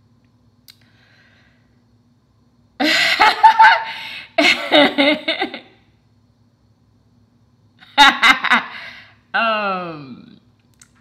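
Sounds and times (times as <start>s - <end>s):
woman laughing: 2.8s - 5.8s, 7.8s - 9.0s.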